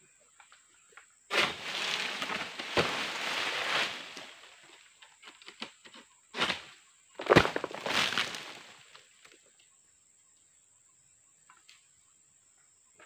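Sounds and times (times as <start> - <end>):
palm frond crashing through leaves: 1.3 - 4.8, 6.4 - 9.0.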